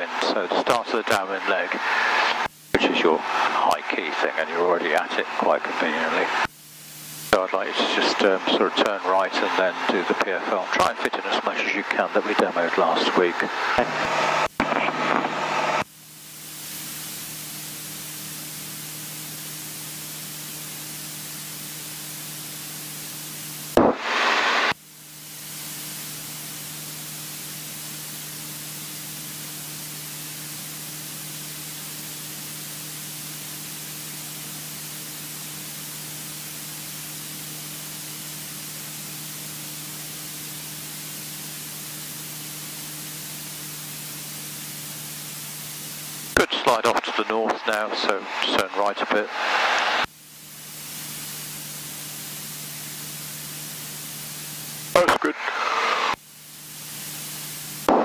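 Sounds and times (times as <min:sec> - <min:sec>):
loud audio burst: 0:00.0 - 0:06.5, 0:07.2 - 0:15.8, 0:23.8 - 0:24.8, 0:46.3 - 0:50.1, 0:54.9 - 0:56.2
aircraft engine and propeller hum: 0:00.0 - 0:14.6, 0:15.4 - 0:23.8, 0:24.7 - 0:46.4
intercom audio hiss: 0:00.0 - 0:58.0.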